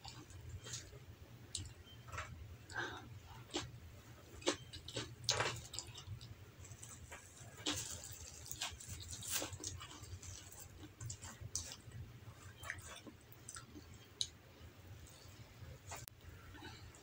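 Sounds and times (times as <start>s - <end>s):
person chewing: 1.5s - 14.4s.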